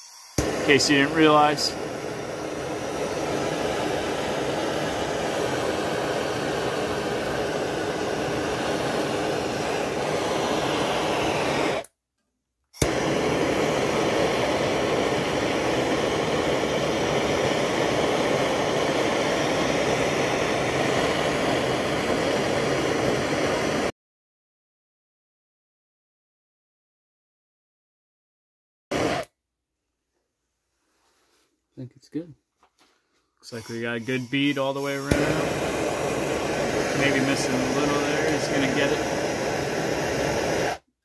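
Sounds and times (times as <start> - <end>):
gas torch flame hissing: 0.0 - 11.9, 12.8 - 23.9, 28.9 - 29.3, 33.4 - 40.9.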